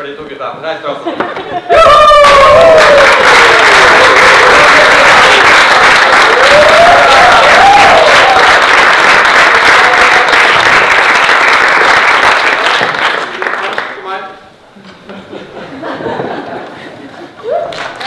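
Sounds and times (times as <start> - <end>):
person cheering: 1.7 - 5.5, 6.2 - 8.6, 17.4 - 18.0
audience applauding: 1.7 - 14.2, 17.4 - 18.0.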